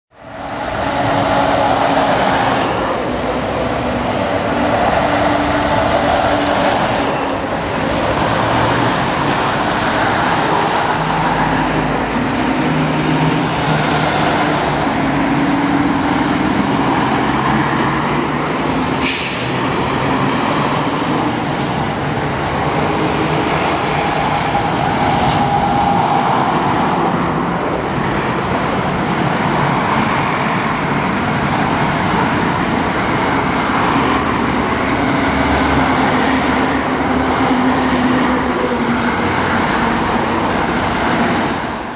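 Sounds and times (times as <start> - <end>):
motorway traffic passing: 0.1 - 41.9
short sharp hiss: 19.0 - 19.6.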